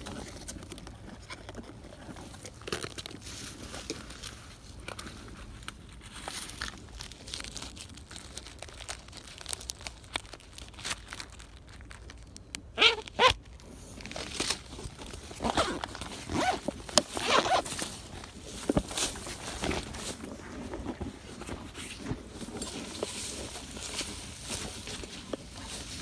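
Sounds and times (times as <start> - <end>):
footsteps through tall grass: 17.6 - 26.0.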